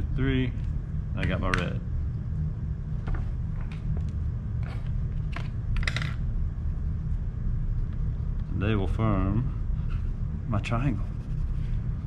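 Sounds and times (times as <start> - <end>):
low room hum: 0.0 - 12.0
pencils clicking on table: 4.7 - 6.2.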